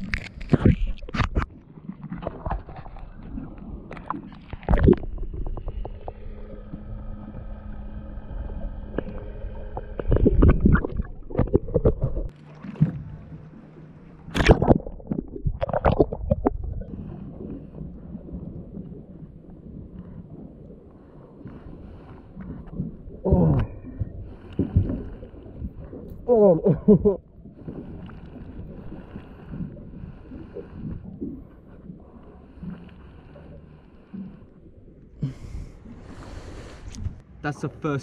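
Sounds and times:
knocks and splashes: 0.0 - 6.2, 9.9 - 20.6, 22.4 - 33.5
water sloshing and gurgling: 0.0 - 38.0.

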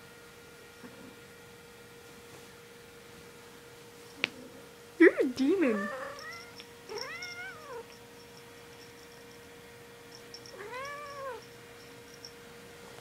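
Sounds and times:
cat meowing: 5.7 - 7.8, 10.6 - 11.4.

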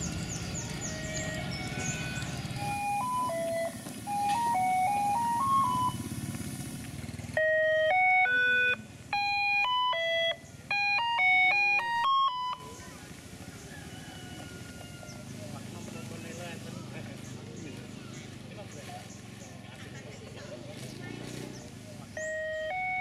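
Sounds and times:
electronic beeping jingle: 0.8 - 6.1, 7.4 - 12.8, 22.2 - 23.0.

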